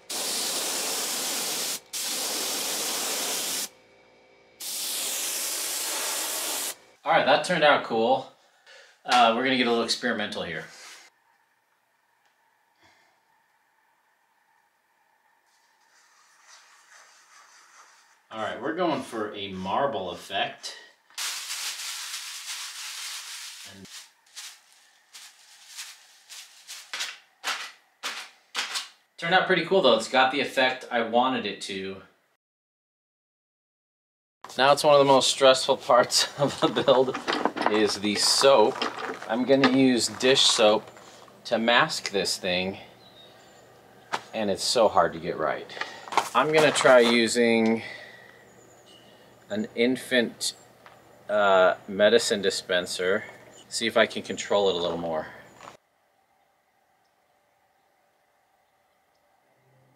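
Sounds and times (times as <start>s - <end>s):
paint spray gun hissing: 0.0s - 3.7s, 4.6s - 6.8s, 21.2s - 24.6s
crumpled paper rustling: 21.2s - 28.9s, 36.2s - 41.4s, 45.9s - 47.3s.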